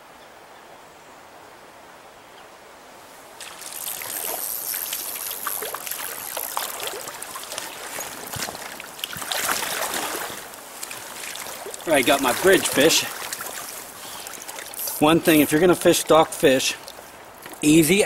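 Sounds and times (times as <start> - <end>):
fish splashing in stream: 3.4 - 17.6.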